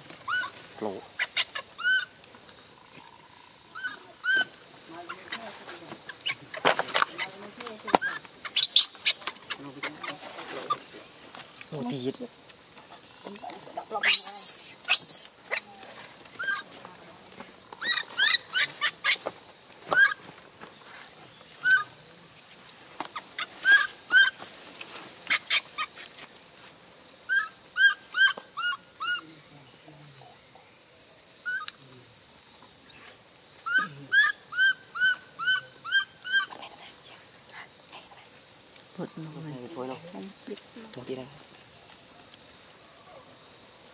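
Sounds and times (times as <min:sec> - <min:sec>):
insects droning: 0:00.0 - 0:43.9
baby monkey squeaky cries: 0:00.3 - 0:00.6, 0:01.2 - 0:02.1, 0:03.8 - 0:04.5, 0:08.0 - 0:10.8, 0:14.0 - 0:15.6, 0:16.4 - 0:16.6, 0:17.8 - 0:19.2, 0:21.6 - 0:21.9, 0:23.4 - 0:24.4, 0:25.3 - 0:25.9, 0:27.3 - 0:29.2, 0:33.6 - 0:36.5.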